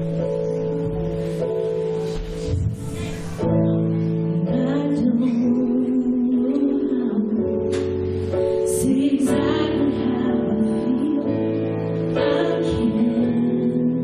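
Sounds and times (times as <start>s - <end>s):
person singing: 8.4s - 14.0s.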